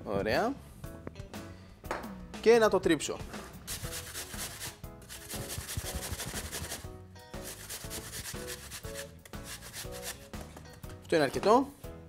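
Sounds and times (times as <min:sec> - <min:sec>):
apple grating on metal grater: 0:03.7 - 0:06.8, 0:07.4 - 0:10.3.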